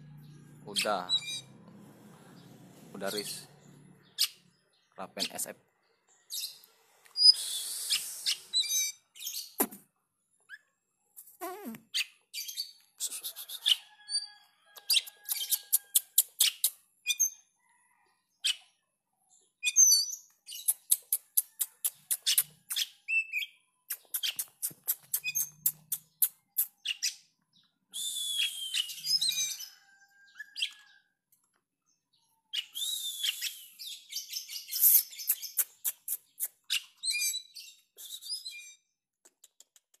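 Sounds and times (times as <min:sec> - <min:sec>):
bird singing: 0:00.0 - 0:01.6, 0:02.3 - 0:07.4, 0:25.1 - 0:31.0.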